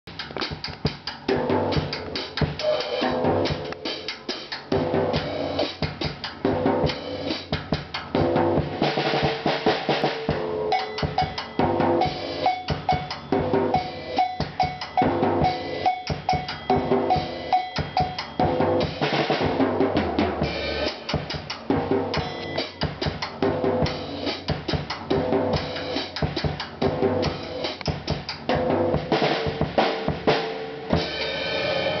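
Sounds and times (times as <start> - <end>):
cowbell struck: 10.7 - 19.6, 22.2 - 23.2.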